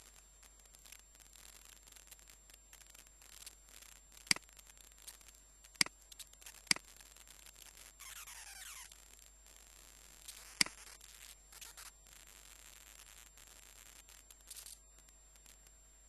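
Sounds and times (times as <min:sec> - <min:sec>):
faint ticks: 0:00.0 - 0:07.9
faint hiss: 0:00.0 - 0:16.0.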